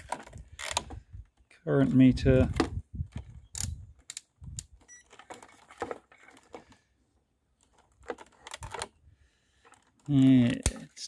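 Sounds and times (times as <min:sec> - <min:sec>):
light plastic clicks and rattles: 0:07.6 - 0:09.0.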